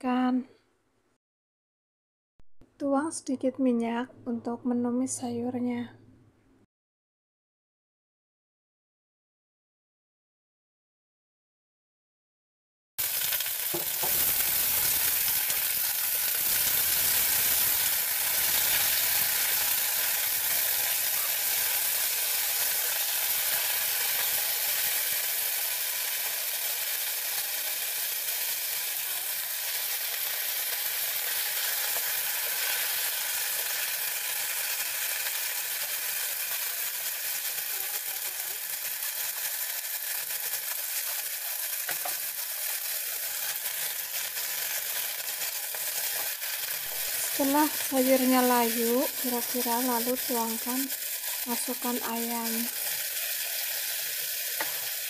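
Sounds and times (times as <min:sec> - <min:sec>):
greens sizzling in oil: 0:13.0 - 0:55.0.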